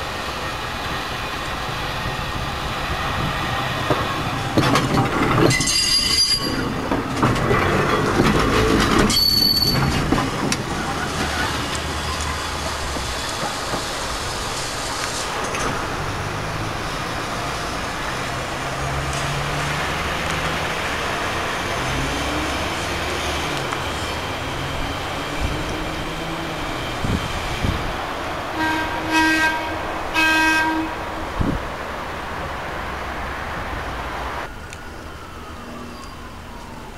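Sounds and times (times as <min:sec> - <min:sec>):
streetcar rumbling on steel wheels: 0:00.0 - 0:36.9
tram running on track: 0:00.0 - 0:36.9
high wheel squeal: 0:05.4 - 0:06.9, 0:08.4 - 0:10.1
tram horn toots: 0:28.5 - 0:31.1.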